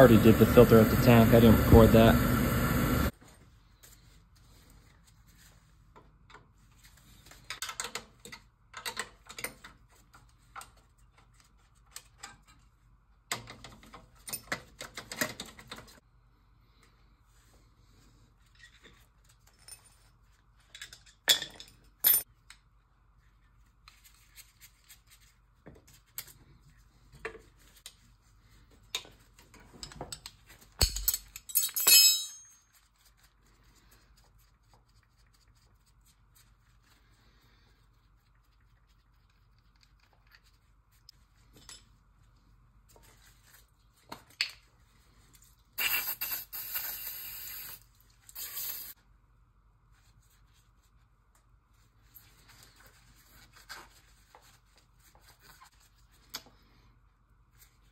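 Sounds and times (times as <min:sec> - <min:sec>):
metal tools clinking and scraping: 0:29.0 - 0:32.8
hissing spray blasts: 0:45.8 - 0:47.8.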